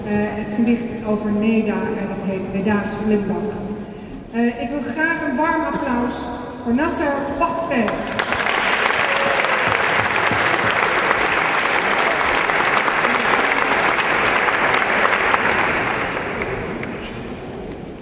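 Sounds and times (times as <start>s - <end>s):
audience applauding: 8.0s - 17.3s.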